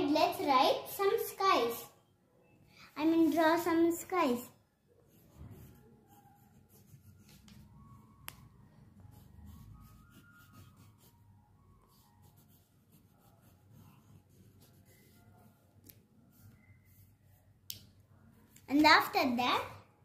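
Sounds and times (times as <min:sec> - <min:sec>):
pencil scratching on paper: 0:04.9 - 0:08.1, 0:08.8 - 0:17.6.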